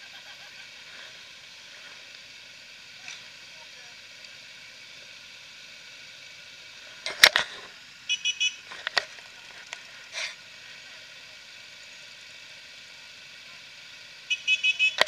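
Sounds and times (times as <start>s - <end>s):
steady hiss: 0.0s - 15.0s
two-tone electronic beeps: 8.1s - 8.6s, 14.3s - 15.0s.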